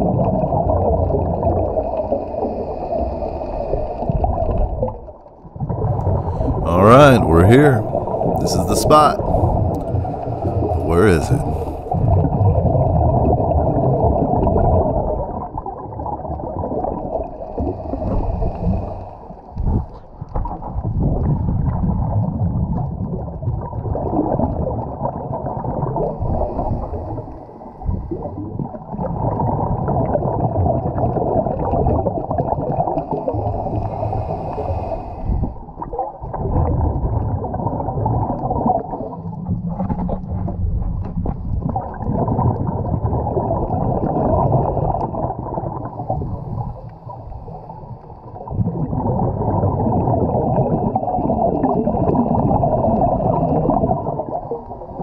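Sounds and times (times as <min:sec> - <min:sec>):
diver's bubbles gurgling: 0:00.0 - 0:07.2, 0:07.8 - 0:55.0
muffled underwater noise: 0:06.1 - 0:12.2.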